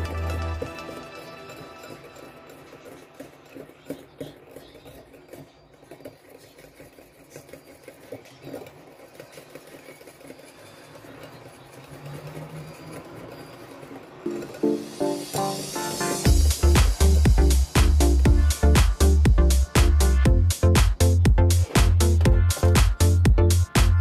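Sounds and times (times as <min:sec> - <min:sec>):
music: 0:00.0 - 0:03.4, 0:14.3 - 0:24.0
whisk beating in a bowl: 0:00.0 - 0:23.3.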